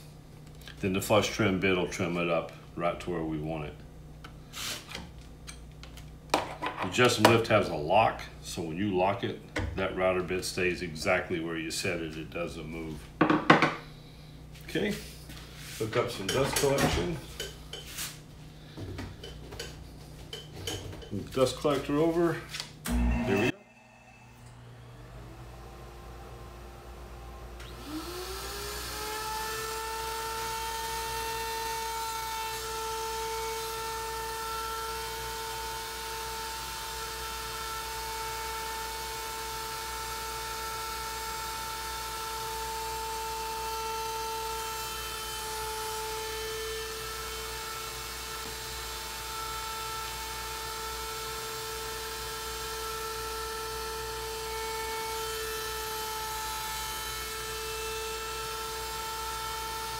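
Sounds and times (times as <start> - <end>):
router high whine: 21.3 - 59.9.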